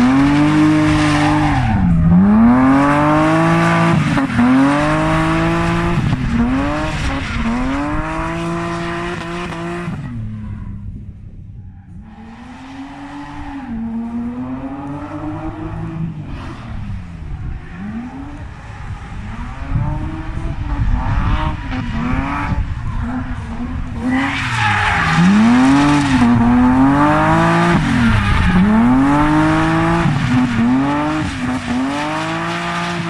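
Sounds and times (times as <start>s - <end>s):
car engine revving hard: 0.0s - 10.1s, 17.7s - 33.0s.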